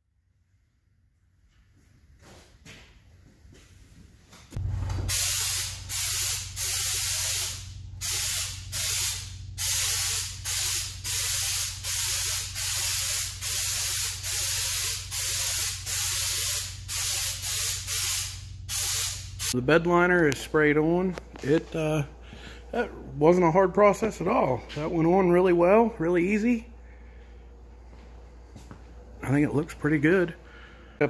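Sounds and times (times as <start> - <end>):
steady low hum: 3.2 - 31.0
spray gun hissing: 5.0 - 19.6.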